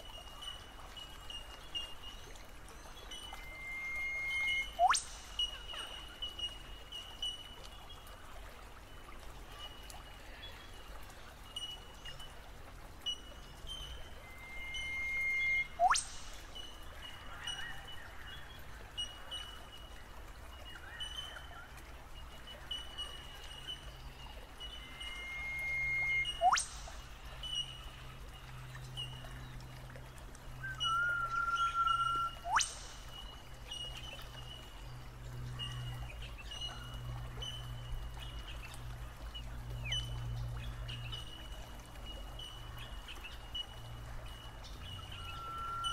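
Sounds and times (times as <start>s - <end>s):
creek water running over rocks: 0.0s - 45.9s
whistled note with fast sweep: 3.4s - 5.1s, 14.3s - 16.1s, 25.0s - 26.8s.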